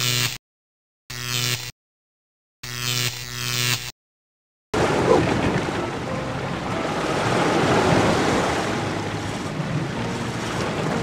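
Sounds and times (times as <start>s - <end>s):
sea waves splashing against rocks: 4.8s - 11.0s.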